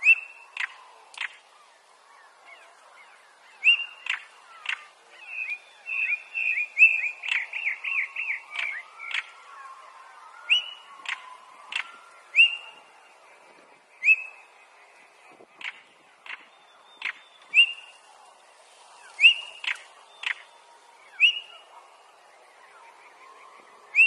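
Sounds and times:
bird calling with whistles and clicks: 0:00.0 - 0:12.9, 0:14.0 - 0:14.5, 0:15.5 - 0:18.0, 0:19.0 - 0:21.9, 0:23.8 - 0:24.0.

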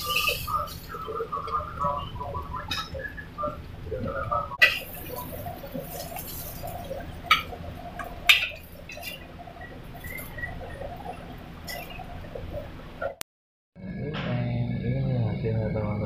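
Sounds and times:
steady low rumble: 0:13.8 - 0:16.0.

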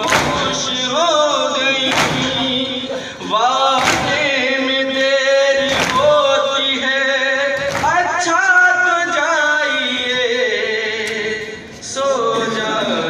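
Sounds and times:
hands slapping chests: 0:00.0 - 0:00.6, 0:01.9 - 0:02.5, 0:03.7 - 0:04.4, 0:05.7 - 0:06.2, 0:07.6 - 0:08.0
men chanting in unison: 0:00.0 - 0:13.0.

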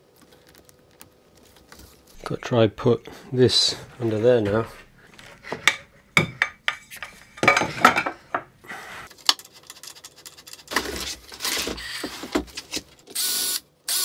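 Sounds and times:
cordless drill whirring: 0:13.2 - 0:14.0.

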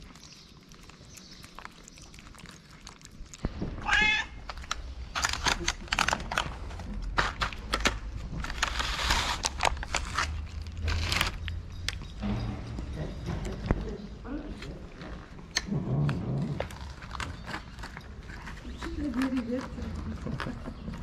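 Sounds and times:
cat meowing: 0:03.7 - 0:04.6
plastic tubs clicking and rustling: 0:04.4 - 0:14.0, 0:16.8 - 0:21.0.

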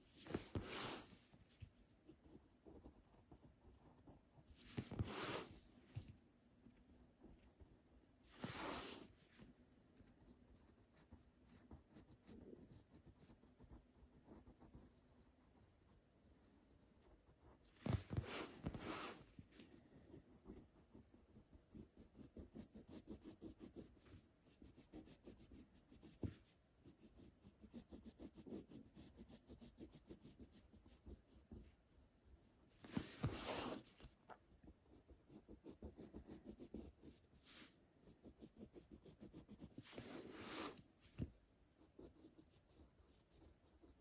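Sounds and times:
paper sliding on a table: 0:00.3 - 0:01.2, 0:04.7 - 0:05.6, 0:08.3 - 0:09.1, 0:18.0 - 0:19.2, 0:32.8 - 0:34.0
pencil scratching on paper: 0:00.3 - 0:01.2, 0:10.5 - 0:15.7, 0:20.0 - 0:32.0, 0:32.9 - 0:33.9, 0:34.7 - 0:40.8, 0:41.8 - 0:44.0.

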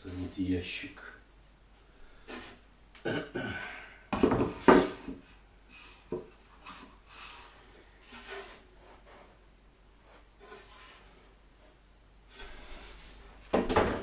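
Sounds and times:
wooden panels knocking and scraping: 0:04.1 - 0:07.0, 0:13.4 - 0:14.0.

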